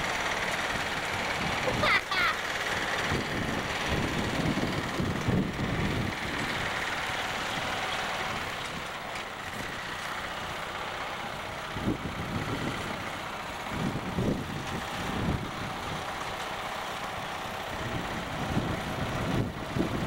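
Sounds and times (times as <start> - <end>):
lawn tractor engine running: 0.0 - 20.0
wind buffeting microphone: 3.0 - 9.0, 11.3 - 16.2, 17.7 - 20.0.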